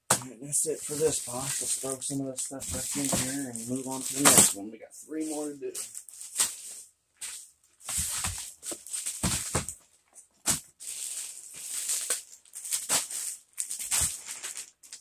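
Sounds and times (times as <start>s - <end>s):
plastic packaging crinkling: 0.8s - 4.5s, 5.7s - 9.8s, 10.5s - 15.0s
items thumping into box: 2.6s - 4.5s, 7.9s - 9.8s.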